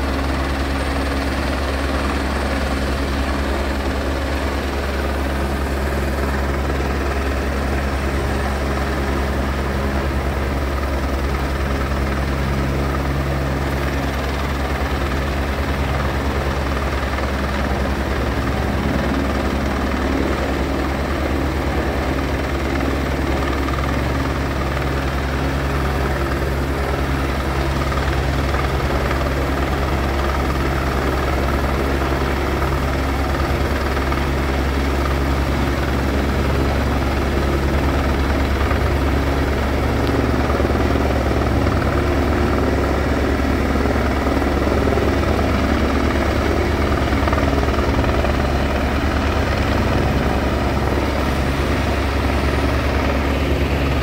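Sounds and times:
helicopter rotor beating: 0.0s - 54.0s
helicopter turbine noise: 0.0s - 54.0s.

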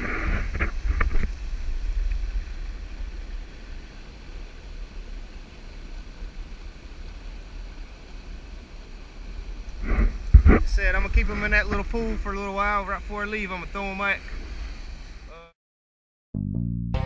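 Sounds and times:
wind buffeting microphone: 9.4s - 12.4s.

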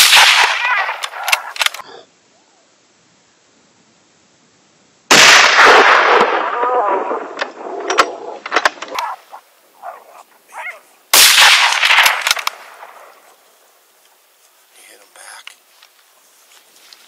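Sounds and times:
rifle shots echoing: 0.0s - 1.8s, 5.1s - 8.8s, 11.1s - 13.3s.

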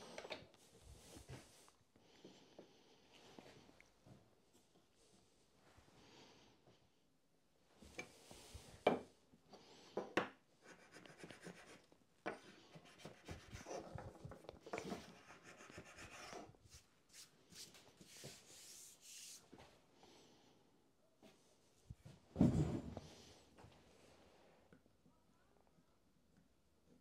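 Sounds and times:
soft rubbing: 15.2s - 19.6s.

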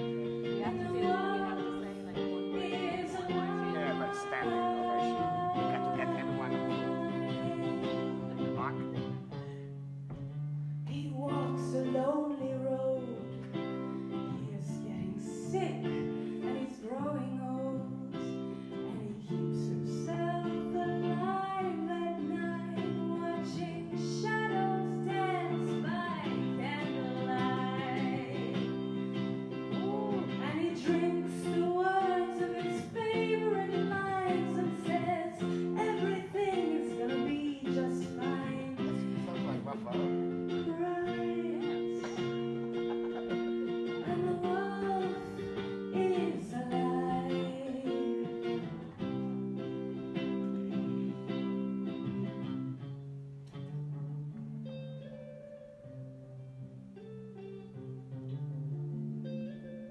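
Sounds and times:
woman singing into microphone: 0.0s - 8.5s, 10.9s - 39.4s, 40.5s - 51.8s
electric guitar chords: 0.0s - 59.9s.

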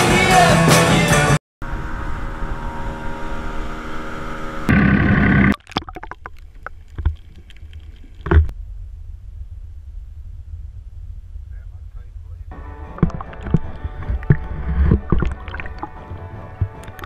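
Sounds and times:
boat motor running: 1.6s - 8.5s, 12.5s - 17.0s
muffled underwater propeller: 4.7s - 8.5s, 9.3s - 17.0s
low thumps: 4.7s - 17.0s.

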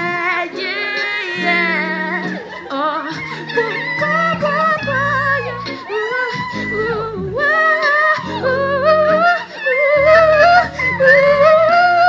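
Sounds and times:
backing track low chords: 6.4s - 9.3s, 10.0s - 12.0s.

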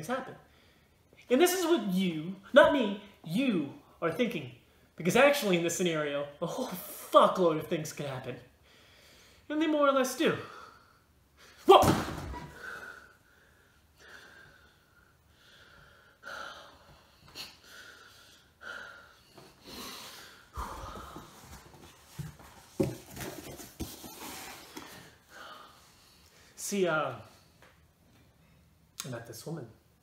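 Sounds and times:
man breathing hard: 12.5s - 21.9s
cardboard box rustling and knocking: 22.2s - 24.2s.

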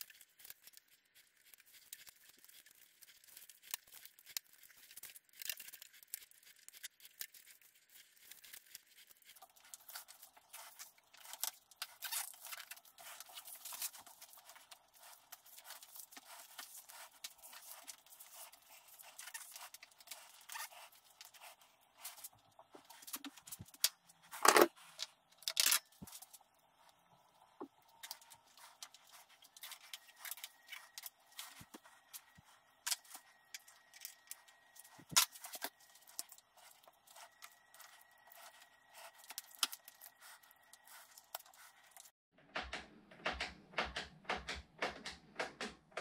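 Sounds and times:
handlebar tape crackling: 8.0s - 42.1s.

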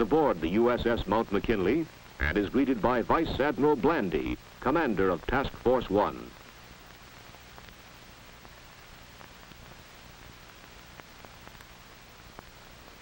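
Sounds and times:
faint low hum: 0.0s - 13.0s
film soundtrack hiss: 0.0s - 13.0s
small clicks and pops: 6.3s - 13.0s.

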